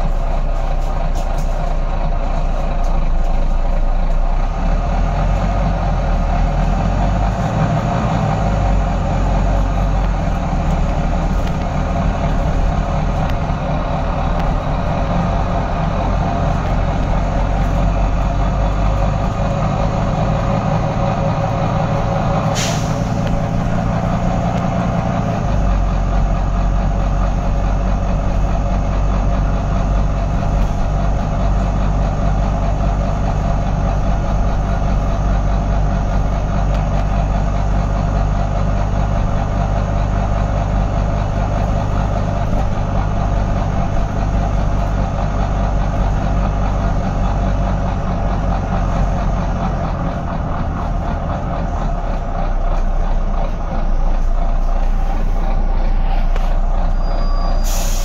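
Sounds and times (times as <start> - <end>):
bus diesel engine running: 0.0 - 58.0
compressed air hiss: 22.4 - 23.2, 57.6 - 58.0.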